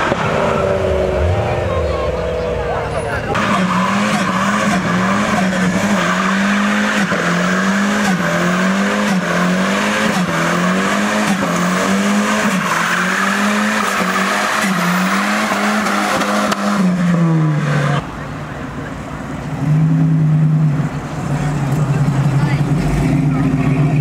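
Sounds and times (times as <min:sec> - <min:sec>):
car engine revving high: 0:00.0 - 0:18.0
tyres squealing on tarmac: 0:02.0 - 0:08.5.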